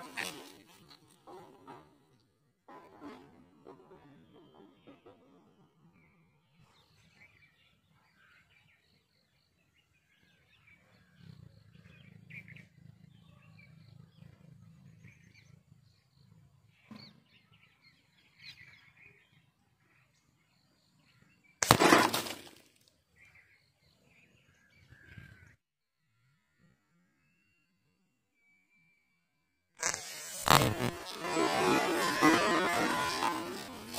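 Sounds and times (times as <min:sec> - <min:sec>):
faint birdsong: 0:03.6 - 0:21.6, 0:23.0 - 0:29.7
air pistol shot crack: 0:21.6 - 0:22.6.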